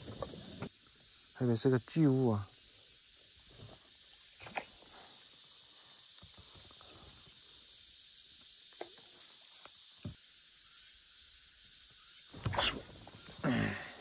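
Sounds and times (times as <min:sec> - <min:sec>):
faint high-pitched hiss: 0:00.0 - 0:14.0.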